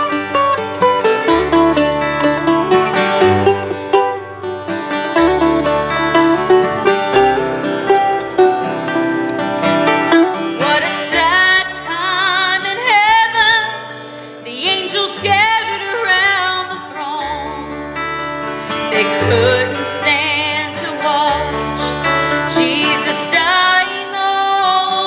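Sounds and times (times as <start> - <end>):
upright bass: 0.0 - 12.1, 15.2 - 24.0
acoustic guitar: 0.0 - 25.0
mandolin: 0.0 - 25.0
woman singing with vibrato: 10.5 - 17.7, 18.8 - 25.0.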